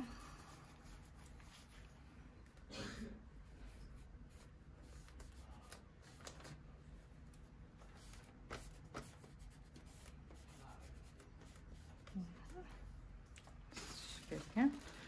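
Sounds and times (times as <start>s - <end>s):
paper rubbing and rustling: 0.2s - 2.0s, 7.8s - 12.6s.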